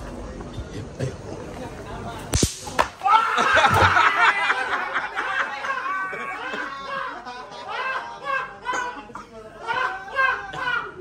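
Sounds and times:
whip-like crack: 2.3s - 3.1s
smack: 2.3s - 4.0s.

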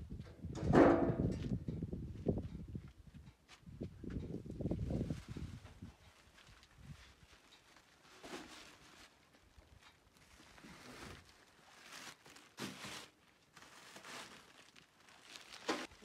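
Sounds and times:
plastic bags rustling: 4.9s - 16.0s.

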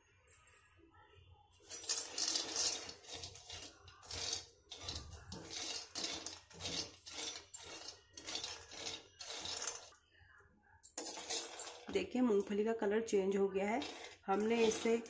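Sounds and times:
nuts rattling in a pan: 1.7s - 10.0s, 11.0s - 11.9s, 13.6s - 15.0s
spoon scraping metal pan: 1.8s - 10.0s, 11.0s - 12.0s, 13.6s - 15.0s.

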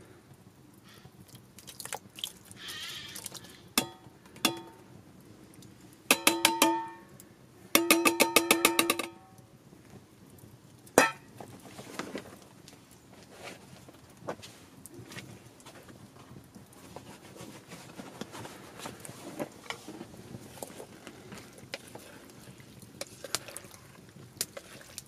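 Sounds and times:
metal pan clanking against pot: 3.8s - 4.8s, 6.1s - 7.1s, 7.8s - 9.3s, 11.0s - 11.2s
pan set down on stone: 11.0s - 11.2s
sauce sliding: 19.8s - 25.0s.

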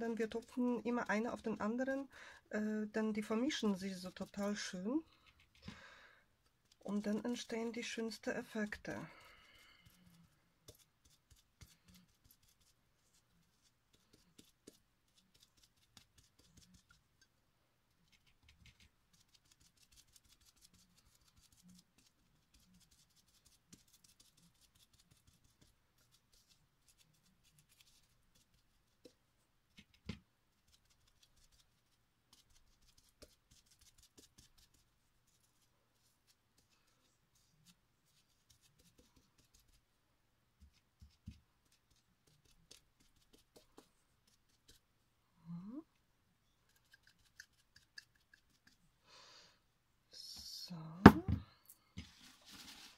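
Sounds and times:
knock: 51.1s - 51.4s.

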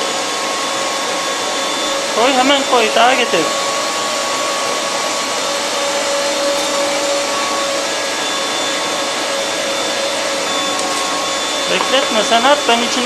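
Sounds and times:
electric meat grinder running: 0.0s - 13.0s.

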